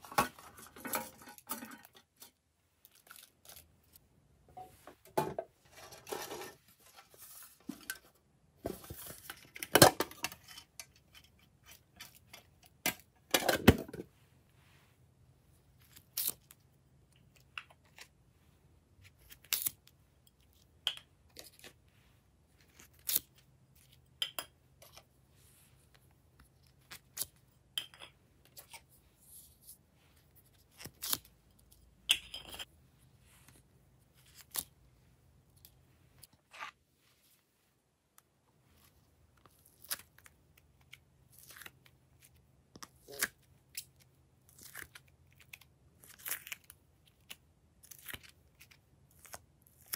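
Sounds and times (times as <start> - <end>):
plastic handling noise: 0.0 - 3.7, 4.5 - 14.2.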